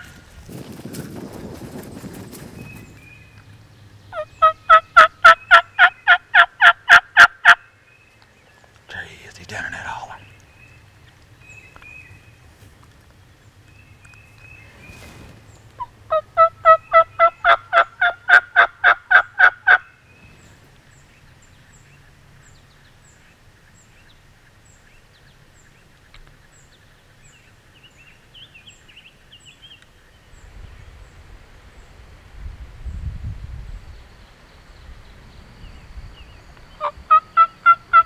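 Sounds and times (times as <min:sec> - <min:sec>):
turkey call yelps: 0:36.8 - 0:38.0.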